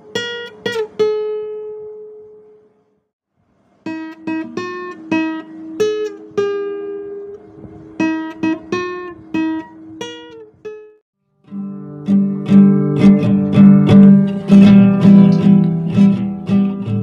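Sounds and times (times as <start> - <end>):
guitar plucked melody: 0.0 - 2.6, 3.8 - 17.0.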